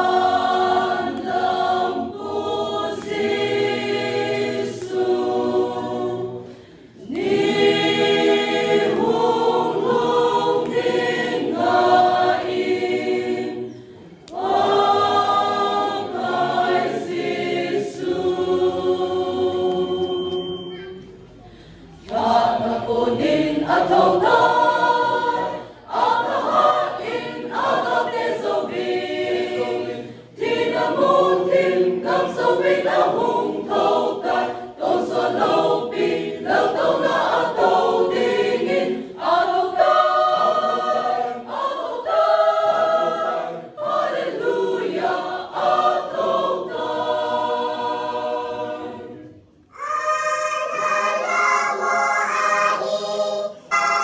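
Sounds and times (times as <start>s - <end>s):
choir singing a hymn: 0.0s - 54.0s.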